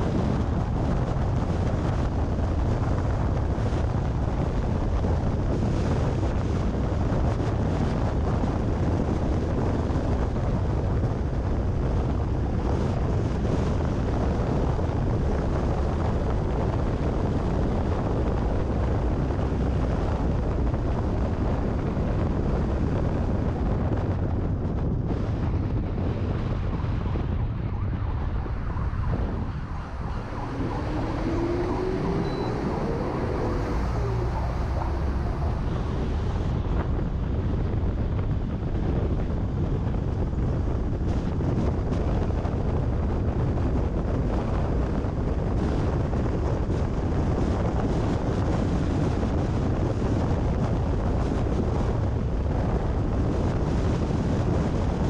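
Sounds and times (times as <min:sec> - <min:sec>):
road and tyre noise: 0:00.0 - 0:55.0
wind blowing on microphone: 0:00.0 - 0:55.0
faint rising whine: 0:26.7 - 0:36.9.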